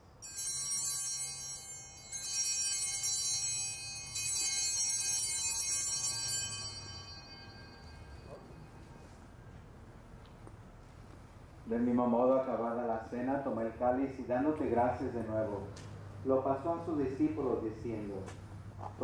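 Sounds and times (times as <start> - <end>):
altar bells ringing: 0.0 - 9.6.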